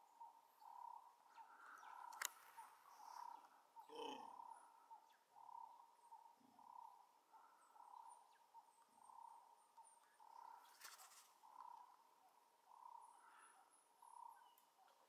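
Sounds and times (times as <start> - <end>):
soft repeated hoot: 0.8 - 6.0
brief rustle: 10.7 - 11.3.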